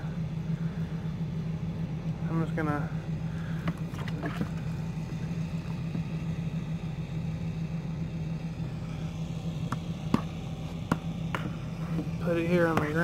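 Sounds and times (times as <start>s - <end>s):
truck engine idling: 0.0s - 13.0s.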